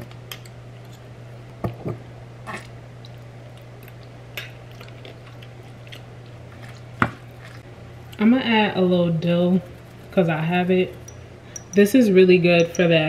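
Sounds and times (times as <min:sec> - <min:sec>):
steady low hum: 0:00.0 - 0:13.0
spoon scraping wet food: 0:04.6 - 0:08.3.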